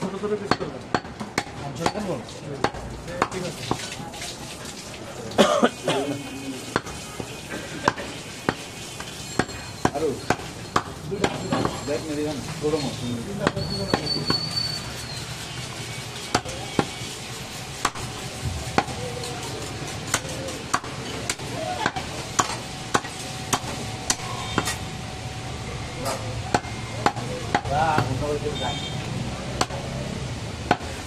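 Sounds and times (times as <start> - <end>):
knife chopping meat on wooden block: 0.4 - 3.8, 16.3 - 17.0, 20.0 - 24.8, 26.5 - 28.2, 30.7 - 31.0.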